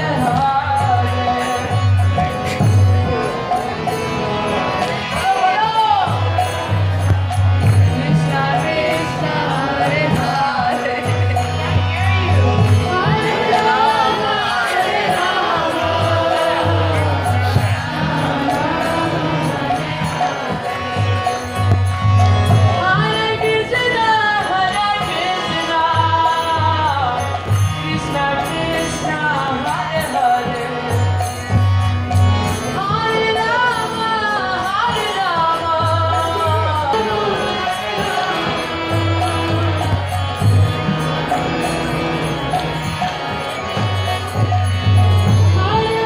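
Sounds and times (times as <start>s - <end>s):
devotional chanting over loudspeakers: 0.0s - 46.0s
harmonium chords: 0.0s - 46.0s
person singing long sliding notes: 7.5s - 21.2s.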